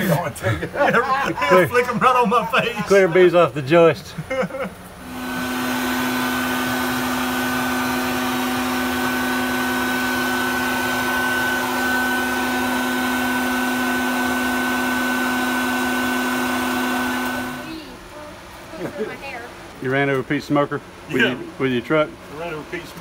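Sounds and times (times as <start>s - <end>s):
vacuum motor hum and whine: 5.0s - 17.9s.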